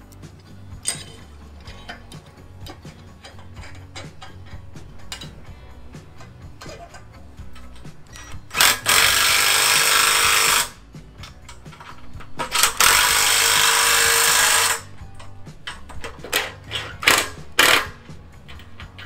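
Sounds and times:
cordless drill boring into steel: 8.6 - 10.8, 12.6 - 14.9.

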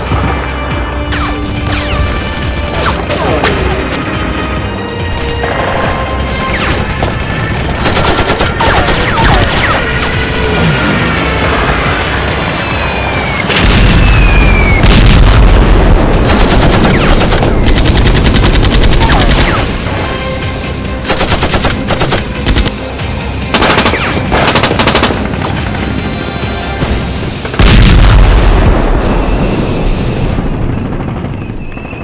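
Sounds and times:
heavy explosion: 13.5 - 16.8, 27.5 - 31.5
machine-gun bursts: 21.1 - 22.7.

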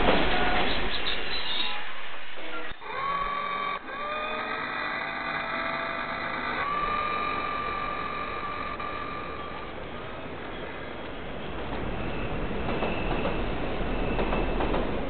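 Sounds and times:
machine motor whine spinning up: 2.7 - 10.2.

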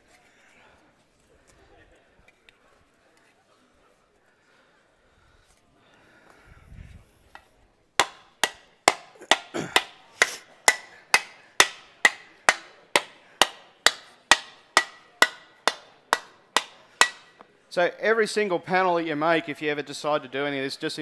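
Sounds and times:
mallet striking metal sheet: 8.0 - 10.0, 10.7 - 17.3.

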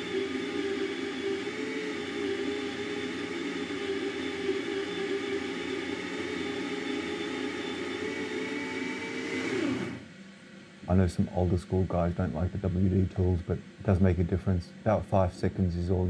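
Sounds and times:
electric coffee grinder whirring: 0.0 - 10.1.

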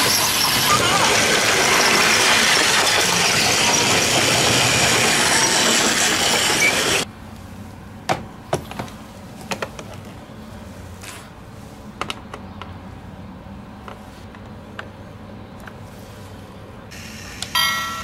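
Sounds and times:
toy trains running on plastic track: 0.0 - 7.0.

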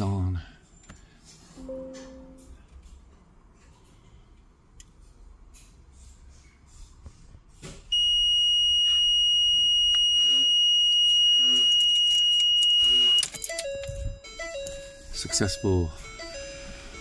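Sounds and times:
high-pitched electronic beep: 8.0 - 17.0
lower stepped electronic tones: 8.0 - 17.0.

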